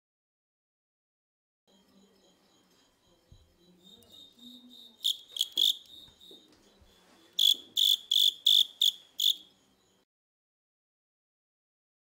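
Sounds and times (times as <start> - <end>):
cricket chirping: 1.7 - 10.0.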